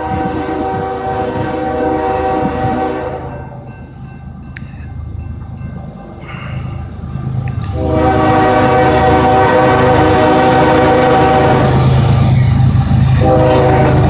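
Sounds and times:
locomotive air horn blast: 0.0 - 3.6, 7.6 - 12.1, 13.0 - 14.0
locomotive low rumble: 0.0 - 14.0.

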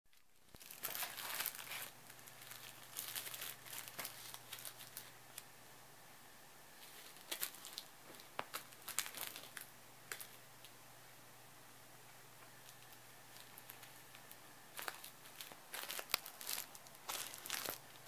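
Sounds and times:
cellophane crinkling: 0.1 - 5.5, 6.8 - 10.4, 12.5 - 18.0.

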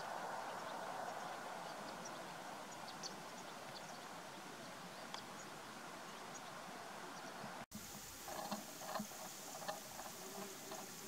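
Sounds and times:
steady hiss: 0.0 - 11.0
faint high ticks: 7.8 - 11.0.

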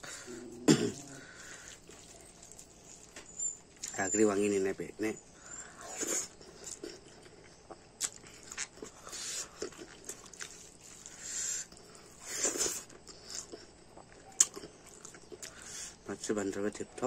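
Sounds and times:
breathy hisses: 0.0 - 2.0, 8.9 - 9.6, 10.9 - 13.3, 15.5 - 16.1
man chewing and lip-smacking: 0.0 - 4.0, 5.8 - 16.0.

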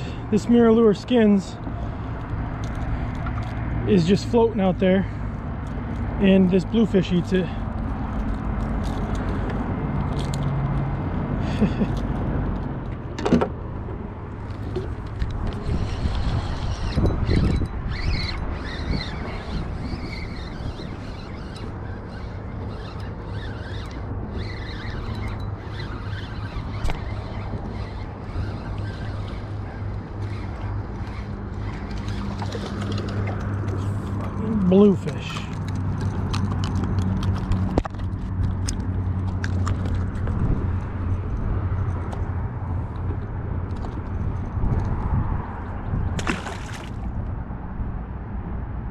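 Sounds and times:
wind buffeting microphone: 13.7 - 48.9.

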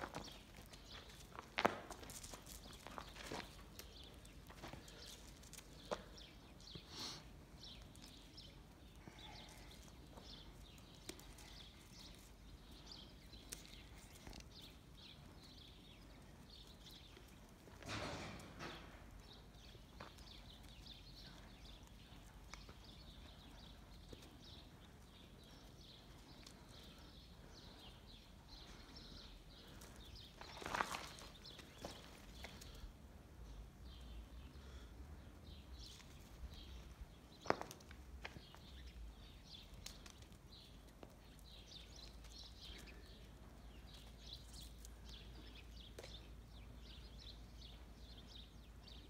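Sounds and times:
soft taps and scuffs on dirt: 0.0 - 6.9, 7.6 - 32.9, 35.8 - 48.6.

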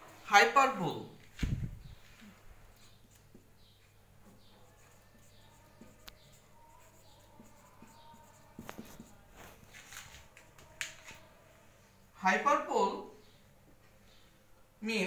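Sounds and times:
marker squeaking on whiteboard: 1.7 - 11.3.

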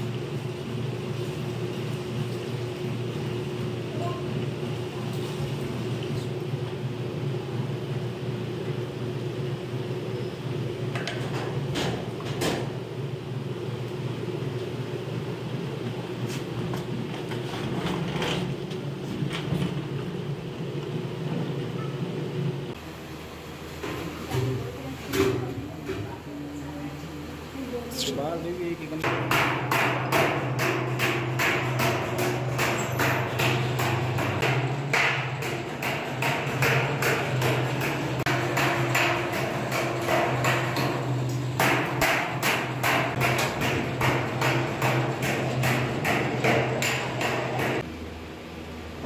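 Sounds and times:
washing machine motor hum: 0.0 - 49.0
hammering on metal: 29.0 - 47.8.

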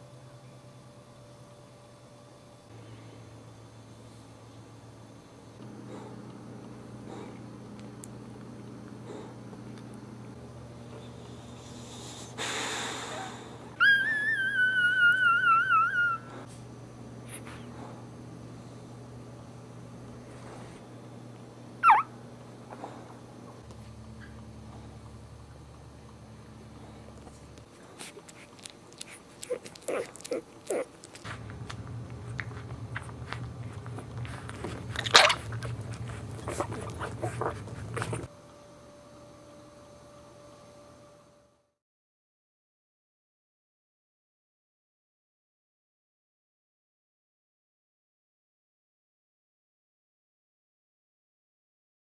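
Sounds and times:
puppy crying: 13.1 - 16.5, 21.8 - 22.1, 29.0 - 31.2
puppy squeaks: 13.8 - 16.3, 21.8 - 22.1
puppy snuffling: 26.9 - 38.3.

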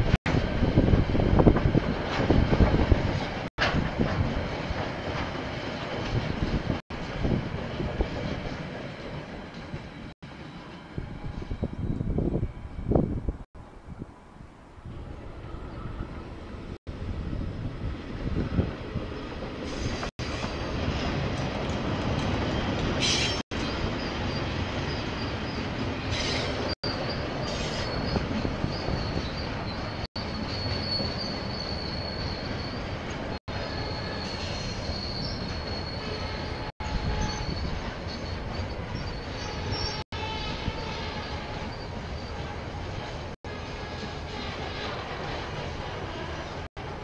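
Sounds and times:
train rumbling past: 0.0 - 47.0
wheels squealing on rails: 18.2 - 47.0.

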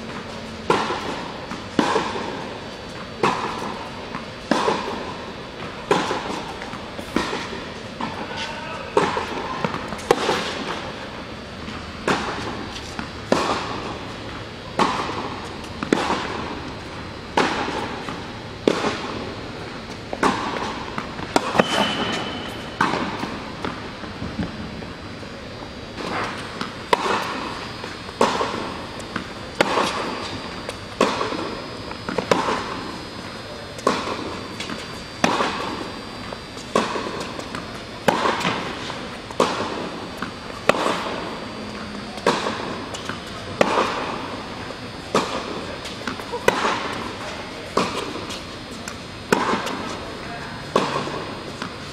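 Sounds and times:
tennis ball hits and bounces: 20.1 - 23.8, 26.0 - 32.9, 50.7 - 51.8
shoe squeak: 21.6 - 22.8.

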